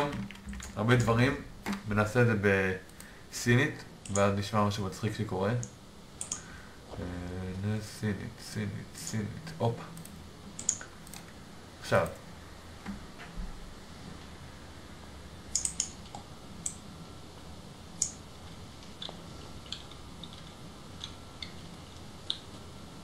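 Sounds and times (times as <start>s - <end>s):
low room hum: 0.0s - 23.0s
computer key taps and clicks: 10.6s - 11.3s, 15.5s - 16.8s.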